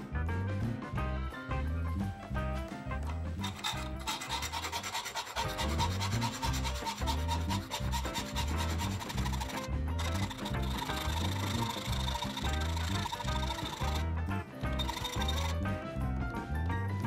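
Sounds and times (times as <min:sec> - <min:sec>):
background music: 0:00.0 - 0:17.0
hand file rasping on steel: 0:03.4 - 0:14.0, 0:14.6 - 0:15.6.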